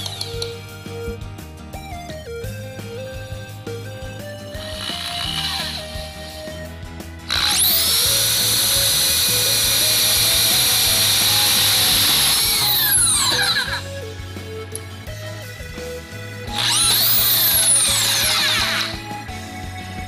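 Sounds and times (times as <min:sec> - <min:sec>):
electric drill whining: 0:00.0 - 0:00.7, 0:04.2 - 0:14.0, 0:16.5 - 0:19.4.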